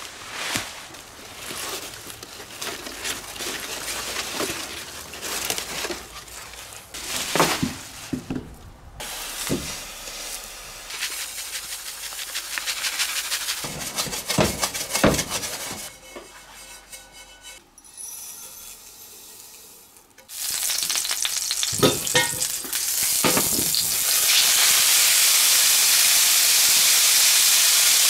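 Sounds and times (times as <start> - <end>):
leaves rustling: 0.0 - 16.8
seeds toasting in frying pan: 9.0 - 14.4, 18.6 - 28.0
scraping in pan: 9.0 - 20.1.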